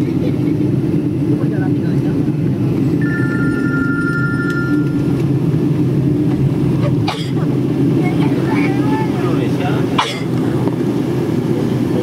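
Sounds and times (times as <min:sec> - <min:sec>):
airliner cabin rumble: 0:00.0 - 0:12.0
two-tone cabin chime: 0:03.0 - 0:05.1.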